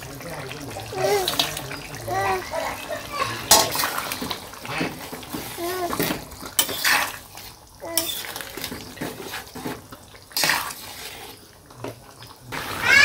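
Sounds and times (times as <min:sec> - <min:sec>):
metal spatula scraping wok: 0:02.8 - 0:11.5.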